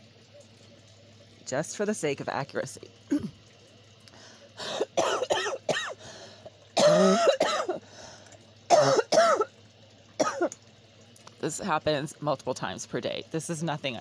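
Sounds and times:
person coughing: 3.1s - 3.4s, 4.6s - 6.0s, 6.8s - 7.9s, 8.7s - 9.5s, 10.2s - 10.6s.

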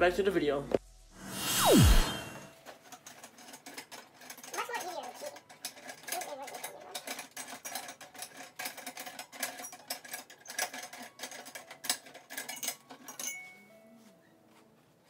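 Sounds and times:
metal parts clicking and rattling: 2.6s - 13.5s.

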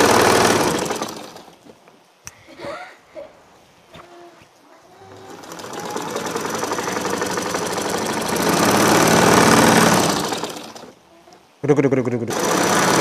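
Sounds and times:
sewing machine stitching: 0.0s - 1.6s, 5.0s - 11.0s, 12.3s - 13.0s.

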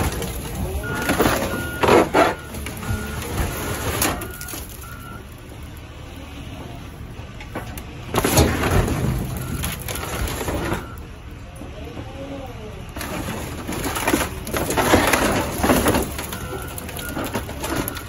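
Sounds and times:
metal clanks and scrapes: 0.0s - 4.8s, 7.4s - 11.0s, 13.0s - 18.0s
loader engine rumbling: 0.0s - 18.0s.

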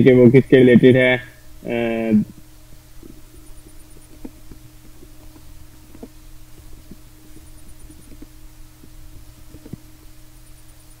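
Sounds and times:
low electrical hum: 0.0s - 11.0s.

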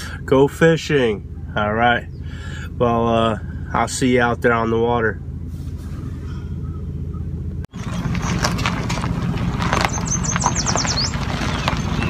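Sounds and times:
low vehicle engine rumble: 0.0s - 12.0s
bird chirping: 6.0s - 8.6s, 9.7s - 12.0s.

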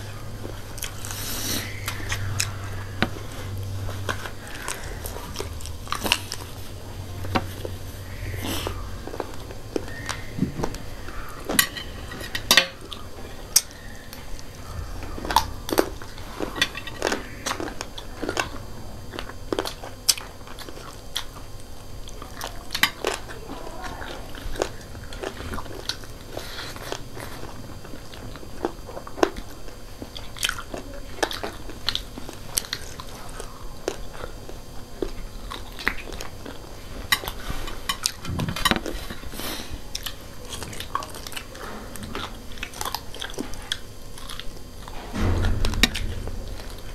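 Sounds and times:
chewing and mouth smacks: 0.0s - 46.9s
sharp crunches: 35.0s - 46.9s.

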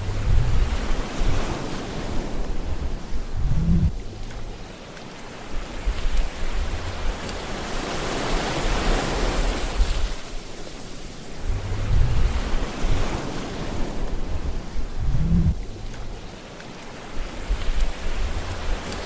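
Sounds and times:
low rumbles of breaking water: 0.0s - 10.4s, 11.2s - 19.0s
surf rushing in and out: 0.0s - 19.0s.

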